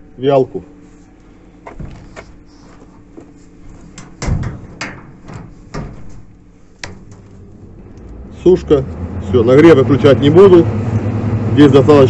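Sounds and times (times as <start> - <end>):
metal cabinet door knocking: 4.0 - 6.2.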